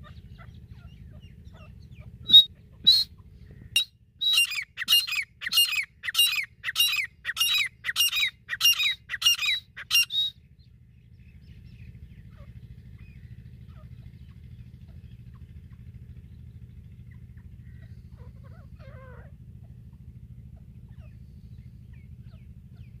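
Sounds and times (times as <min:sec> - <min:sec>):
francolin calling: 0:00.0 - 0:10.3
faint low hum: 0:00.0 - 0:23.0.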